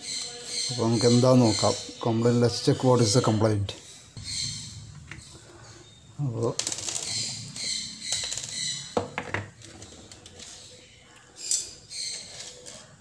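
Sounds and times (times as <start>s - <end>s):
plastic casing scraping and rustling: 6.5s - 10.8s.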